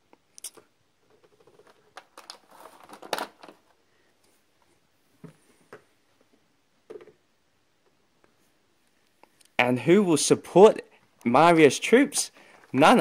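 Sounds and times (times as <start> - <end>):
chess pieces rustling: 1.0 - 3.8.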